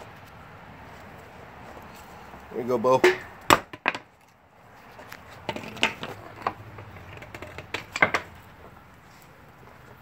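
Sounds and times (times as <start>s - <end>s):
bone bumping on brick: 5.4s - 8.4s.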